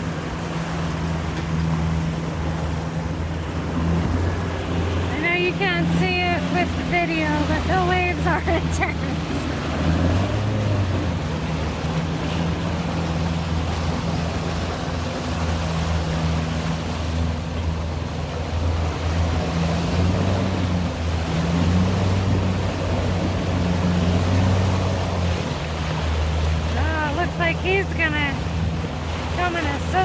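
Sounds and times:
boat motor humming: 0:00.0 - 0:30.0
choppy water rushing: 0:00.0 - 0:30.0
wind: 0:00.0 - 0:30.0.

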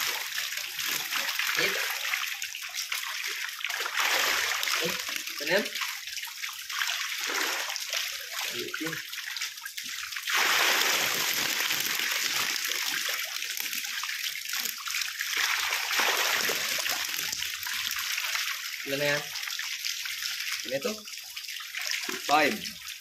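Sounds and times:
water splashing and pouring: 0:00.0 - 0:23.0
fish thrashing at surface: 0:10.3 - 0:13.1.

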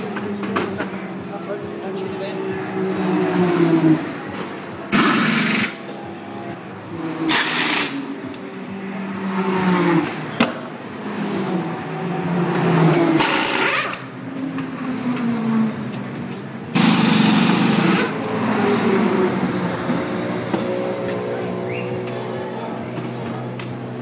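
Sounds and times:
race car engines: 0:00.0 - 0:24.0
pneumatic wheel guns rattling: 0:04.4 - 0:05.8, 0:07.3 - 0:08.4, 0:13.2 - 0:14.1, 0:16.7 - 0:18.9.

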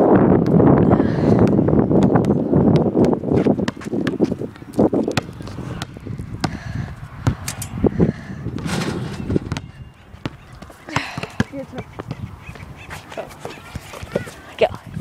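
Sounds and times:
wind buffeting microphone: 0:00.0 - 0:15.0
basketball bouncing on concrete: 0:01.3 - 0:07.5, 0:08.5 - 0:12.3.

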